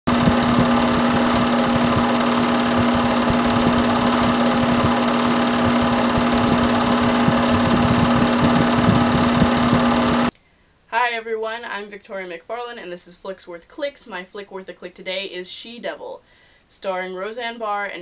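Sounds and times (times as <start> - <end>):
film projector running: 0.0 - 10.3.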